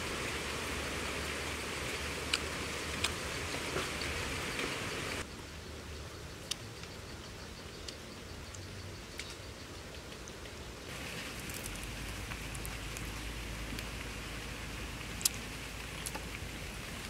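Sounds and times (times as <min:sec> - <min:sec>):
outdoor background hiss: 0:00.0 - 0:17.0.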